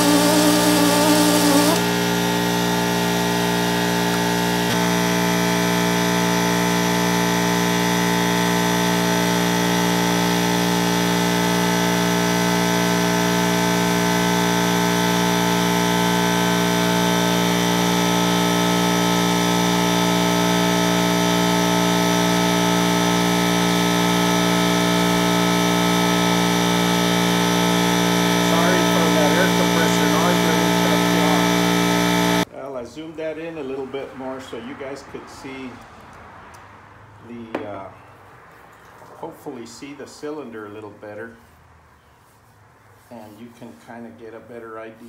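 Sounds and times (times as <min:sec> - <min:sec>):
power drill running: 0:00.0 - 0:32.5.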